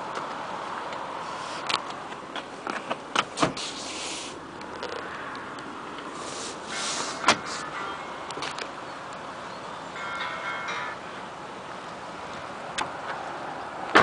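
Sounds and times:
steady background hiss: 5.7s - 12.7s.

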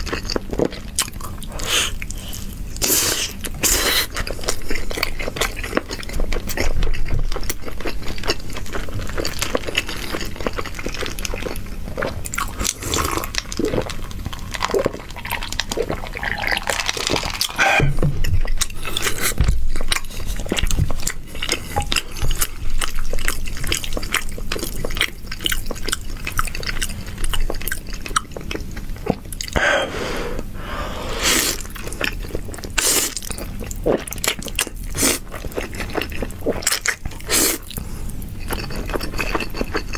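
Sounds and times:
wet chewing and smacking: 0.0s - 29.6s, 31.5s - 39.9s.

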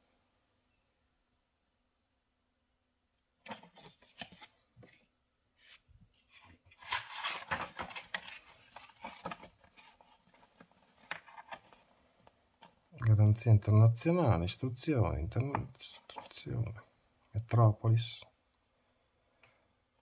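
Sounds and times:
paper taps and scrapes: 3.4s - 5.0s
paper rustling and pages turning: 3.4s - 11.9s, 15.4s - 16.5s.

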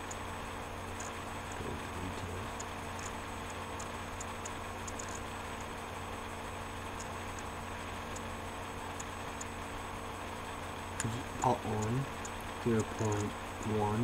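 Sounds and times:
faint ticks: 0.0s - 0.3s, 0.9s - 5.8s, 6.8s - 9.6s, 11.0s - 13.8s
low hum and hiss: 0.0s - 14.0s.

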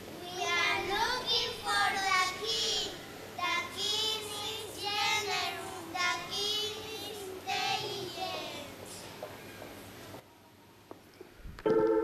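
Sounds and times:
child singing: 0.2s - 9.0s.

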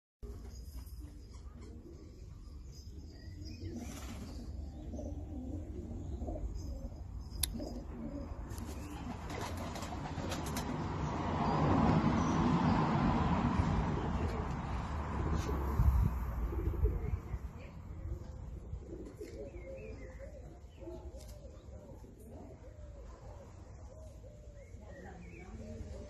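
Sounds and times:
pigeon cooing: 0.3s - 10.8s, 13.8s - 24.7s.

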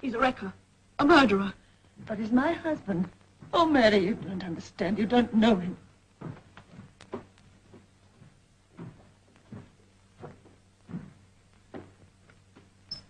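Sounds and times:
faint steady hum: 0.0s - 13.0s
footsteps on boards: 6.2s - 12.8s.

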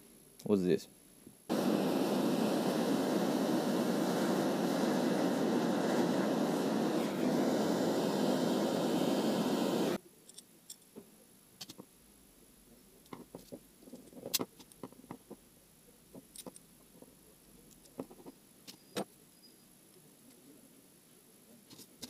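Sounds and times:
gas torch flame hissing: 1.5s - 10.0s
metal parts clicking and tapping: 16.2s - 16.9s.

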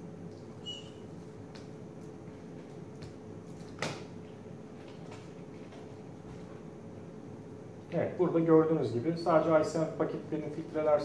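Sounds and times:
steady low hum: 0.0s - 11.0s
brief high squeak: 0.6s - 1.1s.

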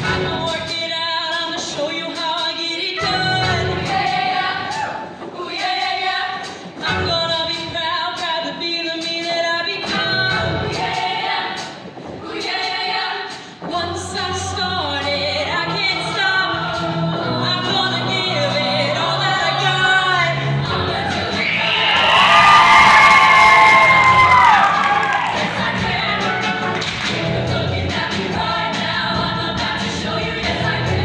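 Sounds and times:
live band with low bass: 0.0s - 1.0s, 3.0s - 4.1s, 6.8s - 7.6s, 14.0s - 31.0s
female choir singing in harmony: 3.4s - 6.6s, 10.4s - 13.4s, 14.6s - 21.8s, 25.0s - 31.0s.

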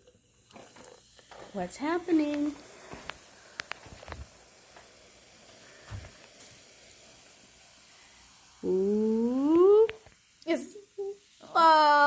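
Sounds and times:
fizzing hiss: 0.0s - 12.0s
person saying ooh: 8.6s - 10.0s.

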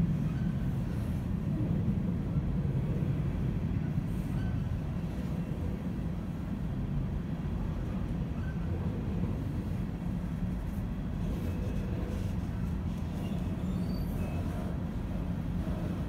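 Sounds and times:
train cars rumbling on rails: 0.0s - 16.0s
faint wheel squeal: 4.1s - 4.8s, 8.3s - 8.8s, 12.9s - 14.8s.

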